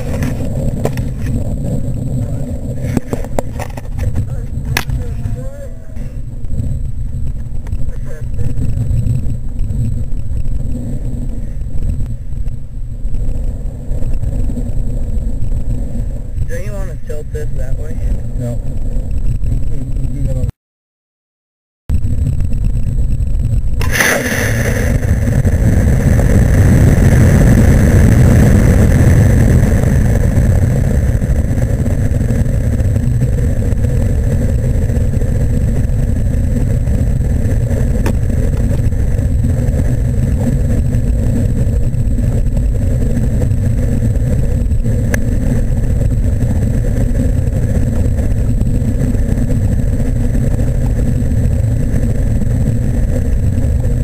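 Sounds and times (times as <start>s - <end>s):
rocket motor firing: 0.0s - 5.2s, 22.0s - 54.0s
air rushing over microphone: 0.0s - 20.5s, 21.9s - 54.0s.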